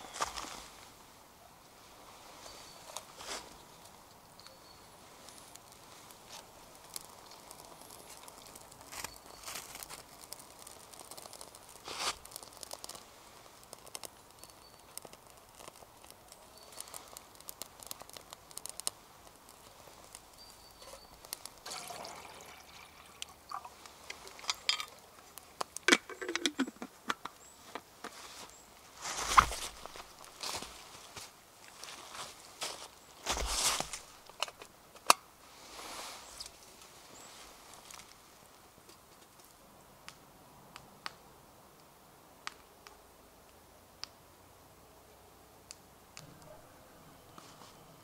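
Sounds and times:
rustling and crinkling: 0.0s - 1.0s, 1.8s - 39.6s, 47.3s - 48.0s
small clicks: 5.2s - 21.6s.

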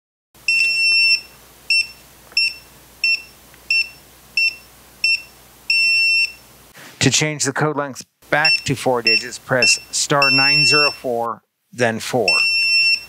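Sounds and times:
keypad beeping: 0.5s - 6.4s, 8.4s - 11.1s, 12.2s - 13.0s.

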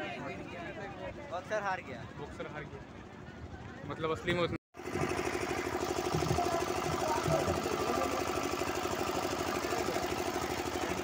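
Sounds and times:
small engine pulsing: 4.8s - 11.0s.

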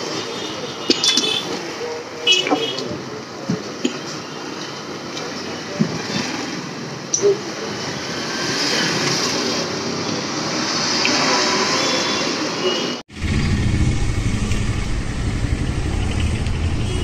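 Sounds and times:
street traffic noise: 0.0s - 17.0s
low rumble: 13.1s - 17.0s.

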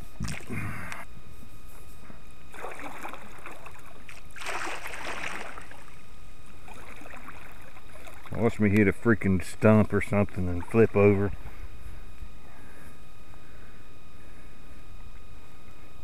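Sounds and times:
kayak paddle splashing: 0.2s - 0.5s, 2.5s - 8.6s
steady low rumble: 4.8s - 16.0s.

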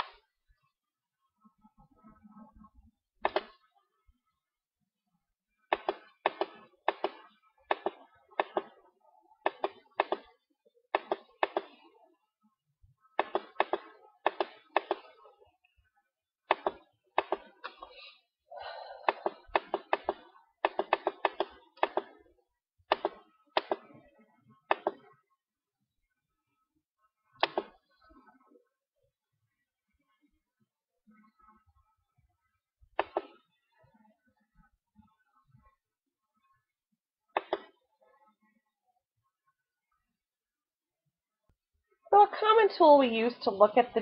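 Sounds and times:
computer mouse clicking: 3.2s - 3.6s, 5.7s - 8.8s, 9.4s - 10.3s, 11.0s - 11.8s, 13.2s - 15.1s, 16.5s - 17.8s, 19.1s - 22.2s, 22.9s - 23.9s, 24.7s - 25.1s, 27.4s - 27.8s, 33.0s - 33.4s, 37.4s - 37.7s.

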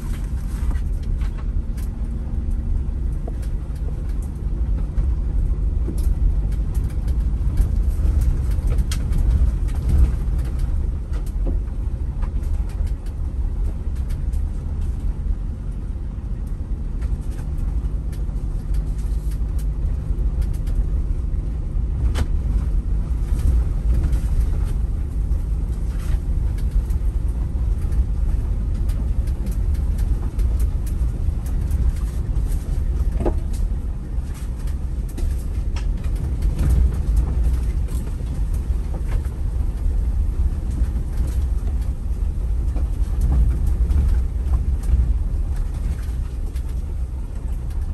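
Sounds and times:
light clicks and rattles: 0.0s - 47.9s
road and engine rumble: 0.0s - 47.9s.

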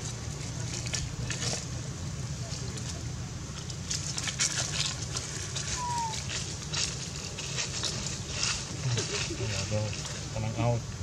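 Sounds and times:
dry leaves crackling and rustling: 0.0s - 11.0s
steady low rumble: 0.0s - 11.0s.

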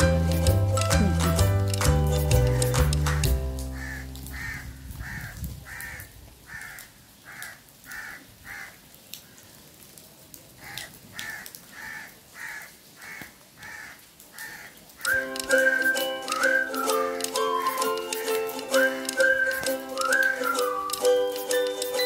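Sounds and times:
crow cawing: 3.8s - 8.8s, 10.6s - 14.8s.

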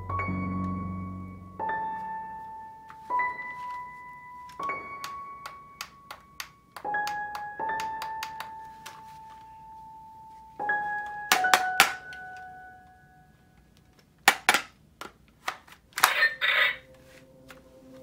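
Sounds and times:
slow electric piano music: 0.0s - 13.7s.

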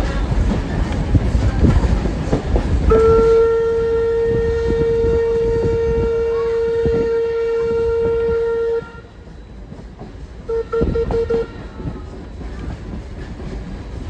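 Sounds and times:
train rumble and clatter: 0.0s - 14.0s
train whistle short toots: 2.9s - 9.2s, 10.5s - 12.0s
train whistle blast: 2.9s - 9.3s, 10.5s - 12.1s.

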